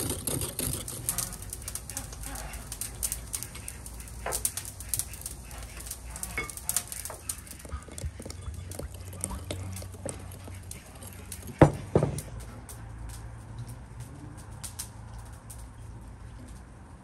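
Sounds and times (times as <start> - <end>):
loud knocks: 11.6 - 12.3.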